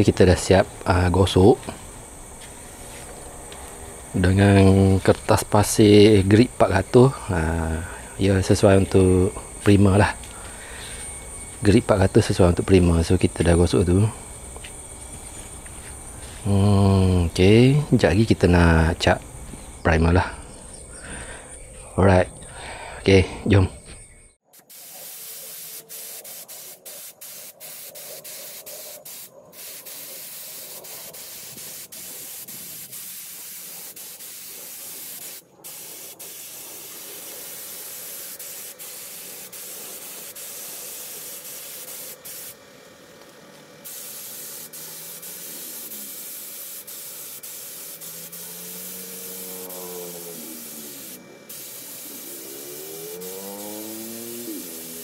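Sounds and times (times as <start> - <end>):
spray can hissing: 24.5 - 55.0
faint pitched rising tone: 48.1 - 55.0.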